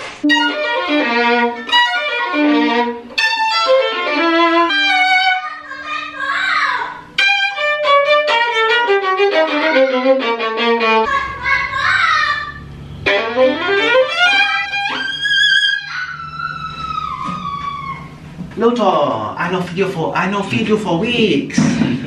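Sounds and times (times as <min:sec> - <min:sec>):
solo violin melody: 0:00.2 - 0:05.7, 0:07.0 - 0:11.2, 0:12.6 - 0:18.2.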